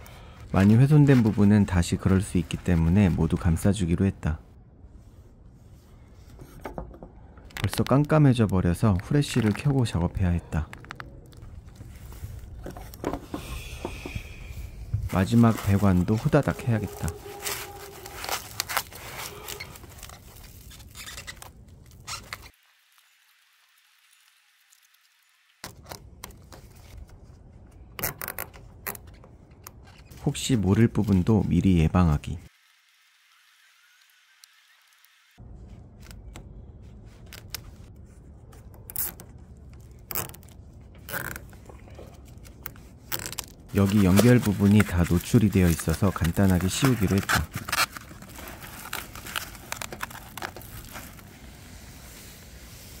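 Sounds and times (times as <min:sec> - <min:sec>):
insulation rustling and crinkling: 0:00.0 - 0:04.2, 0:07.4 - 0:23.1, 0:35.4 - 0:53.0.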